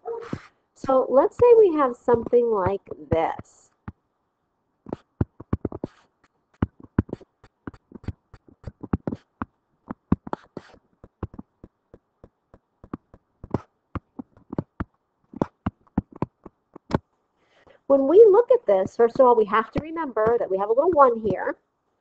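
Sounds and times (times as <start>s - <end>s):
stylus tapping on touchscreen: 1.4s - 4.0s, 4.9s - 17.0s.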